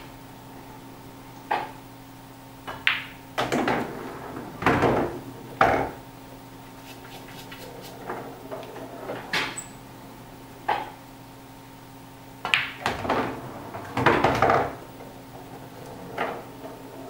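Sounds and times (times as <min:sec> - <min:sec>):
cue striking ball: 0:02.7 - 0:06.0, 0:12.4 - 0:17.0
ball rolling through return channel: 0:02.8 - 0:06.0, 0:06.8 - 0:09.8, 0:12.4 - 0:17.0.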